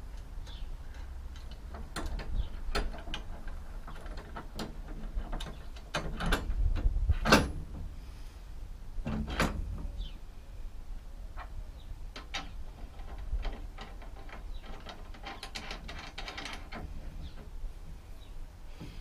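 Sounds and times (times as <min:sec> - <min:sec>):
metal clicks and knocks: 0:00.0 - 0:07.9, 0:09.0 - 0:09.9, 0:11.3 - 0:17.6.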